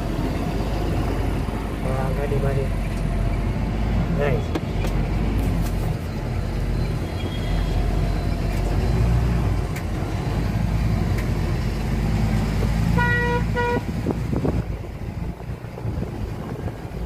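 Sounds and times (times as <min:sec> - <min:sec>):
vehicle horn toots: 0:12.9 - 0:13.9.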